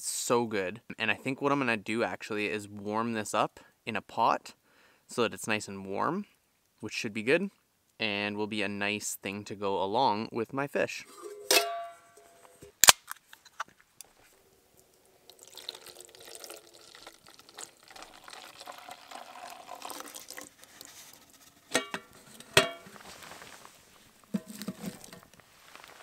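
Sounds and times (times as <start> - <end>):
metal pot clanks: 11.1 - 12.5, 21.7 - 23.0, 24.3 - 25.2
cider pouring into metal pot: 14.8 - 23.0, 24.3 - 25.3.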